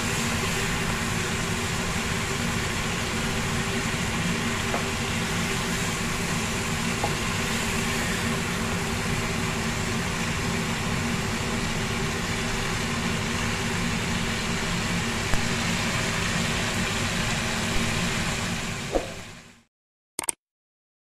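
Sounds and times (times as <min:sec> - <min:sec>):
food sizzling in frying pan: 0:00.0 - 0:19.4.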